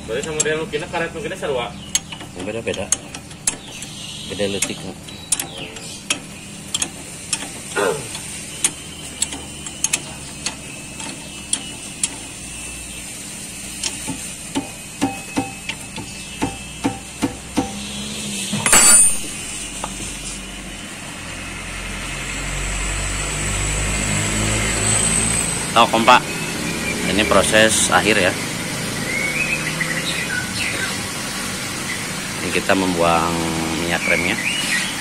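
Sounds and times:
metal clatter: 18.6 - 19.7.

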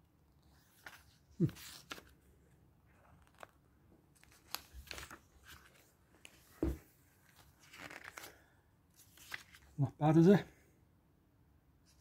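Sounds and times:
paper pages rustling: 0.4 - 2.2, 2.9 - 9.8
page flipping thump: 6.3 - 6.9.

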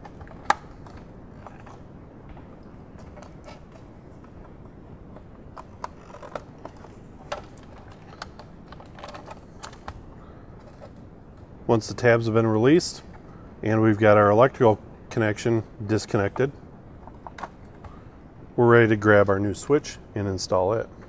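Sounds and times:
low steady background hum: 0.0 - 21.0.

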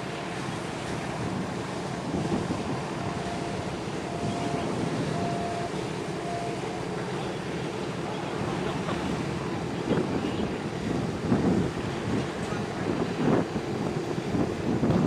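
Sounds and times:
outdoor harbour rush: 0.0 - 15.0
wind buffeting microphone: 0.0 - 15.0
faint beeping: 3.0 - 8.6.

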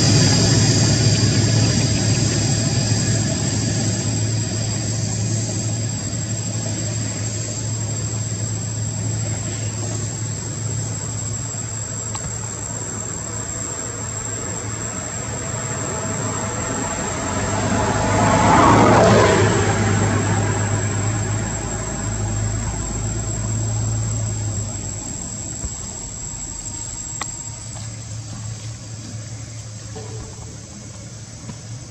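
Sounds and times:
thin high whine: 0.0 - 31.5
low engine hum: 0.0 - 31.9
vehicle passing by: 14.0 - 27.2.

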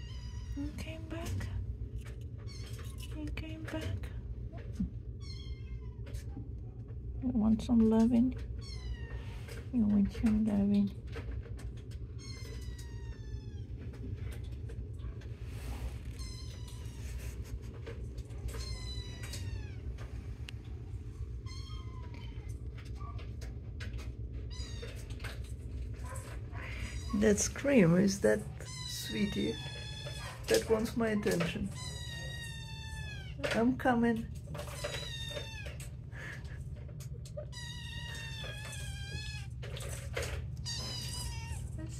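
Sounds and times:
cat meowing: 31.7 - 33.5, 34.6 - 35.8, 37.5 - 39.6, 40.6 - 41.9.

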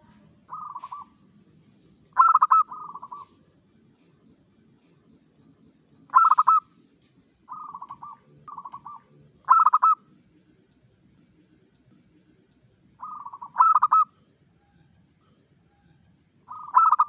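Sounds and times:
dove cooing: 0.0 - 1.2, 2.1 - 3.4, 6.1 - 6.7, 7.5 - 10.0, 13.0 - 14.2, 16.5 - 17.0.

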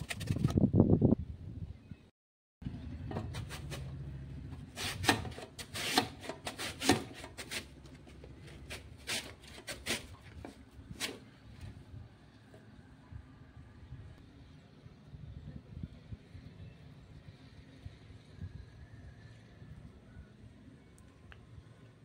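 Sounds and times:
potato scraping on grater: 4.8 - 7.8, 8.5 - 11.3.

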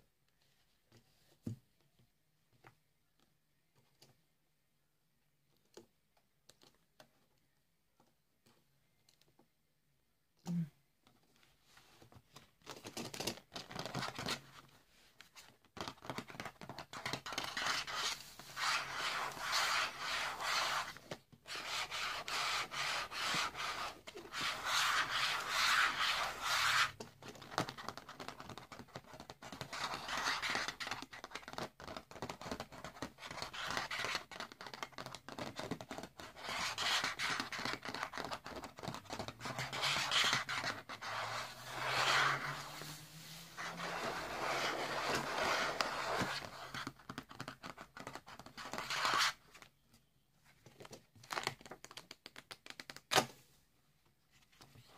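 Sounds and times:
fingertips rubbing on plastic and paper: 21.5 - 27.0, 31.4 - 49.3.

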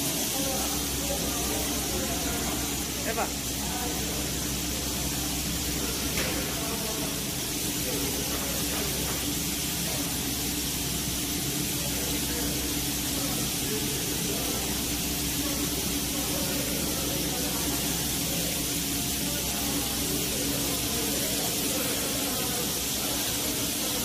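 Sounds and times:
machinery hum: 0.0 - 24.0
steady hiss: 0.0 - 24.0.

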